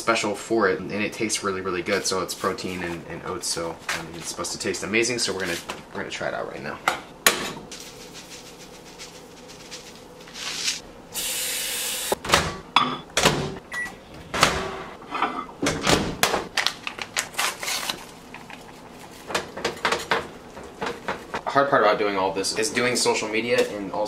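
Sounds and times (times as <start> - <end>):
paper packet crinkling and tearing: 7.8 - 10.8, 16.5 - 19.3.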